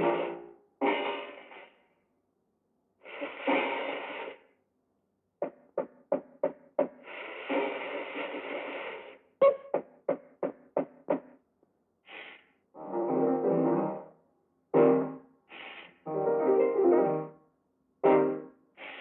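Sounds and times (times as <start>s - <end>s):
cartoon music: 14.8s - 15.2s, 18.0s - 18.5s.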